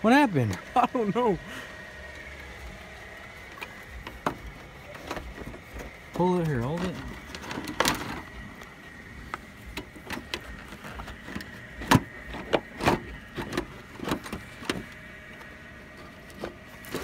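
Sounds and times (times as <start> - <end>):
car parts clicking and knocking: 3.4 - 17.0.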